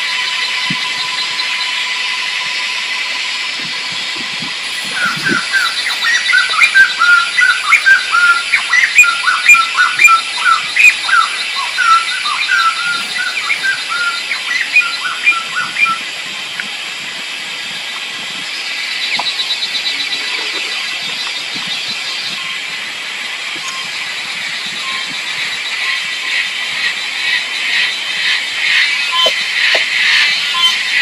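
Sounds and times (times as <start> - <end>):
high insect drone: 0.0 - 31.0
pulsing insect trill: 0.0 - 31.0
bird chirping: 4.6 - 16.0, 28.8 - 31.0.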